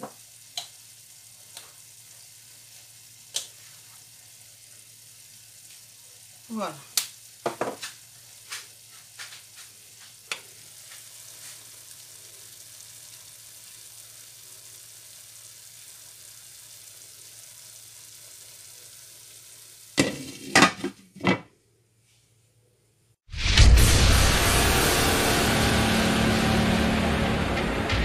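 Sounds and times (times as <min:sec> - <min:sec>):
vegetables and eggs sizzling in pan: 0:00.0 - 0:21.0
glass lid knocking on pan: 0:07.4 - 0:07.8.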